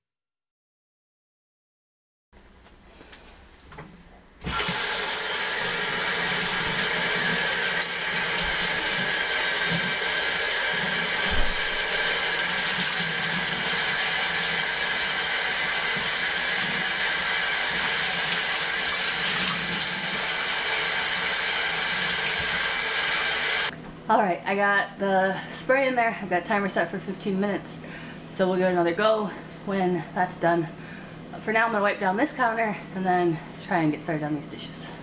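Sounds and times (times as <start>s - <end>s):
faucet water splashing: 4.5s - 23.7s.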